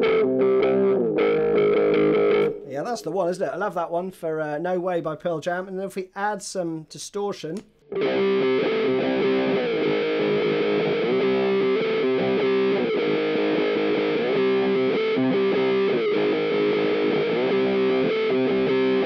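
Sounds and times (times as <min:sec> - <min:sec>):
distorted electric guitar riff: 0:00.0 - 0:02.8, 0:07.9 - 0:19.0.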